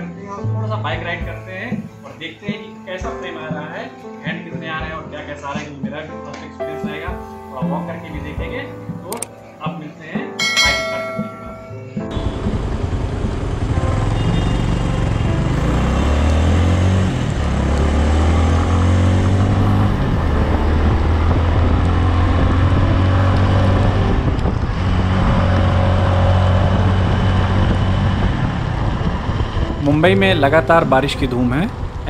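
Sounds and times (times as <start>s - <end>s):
wind and road noise: 10.4s - 32.0s
motorcycle engine revving: 12.1s - 30.1s.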